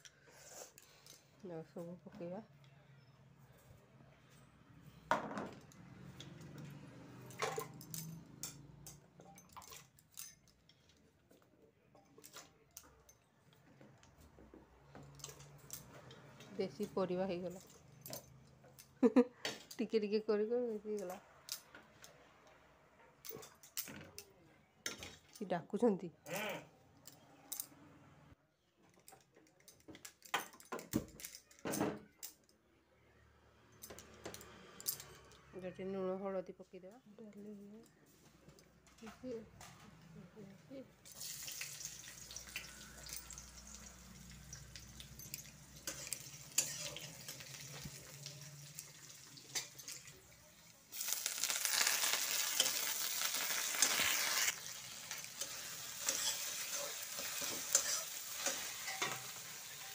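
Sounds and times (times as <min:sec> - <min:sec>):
vegetables clattering in metal pot: 0:07.2 - 0:10.5, 0:44.7 - 0:59.9.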